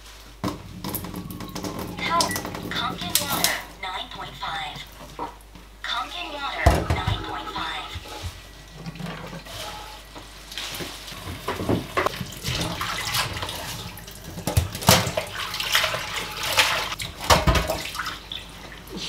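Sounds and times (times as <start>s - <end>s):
colander and bowl clattering: 0.4s - 3.6s, 10.6s - 18.1s
tap water running into a sink: 0.4s - 3.6s, 10.8s - 19.0s.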